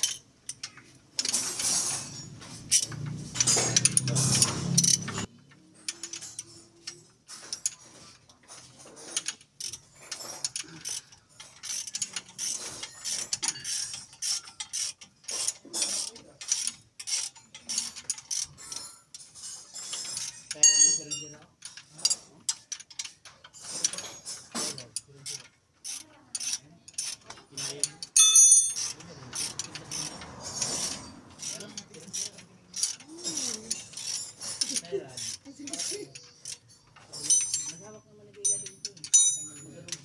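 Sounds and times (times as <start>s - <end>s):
ratchet wrench clicking: 0.0s - 40.0s
loud mechanical noise: 1.2s - 5.3s.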